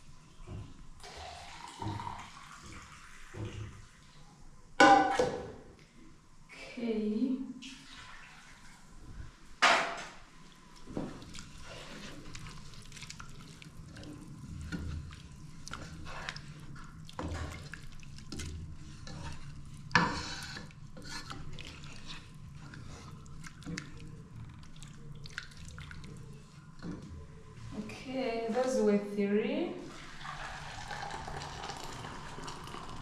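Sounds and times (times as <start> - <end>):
water splashing into a pot: 1.0 - 4.0, 29.8 - 33.0
liquid sloshing in metal pot: 7.8 - 28.8
spatula stirring wet rice: 10.8 - 27.1.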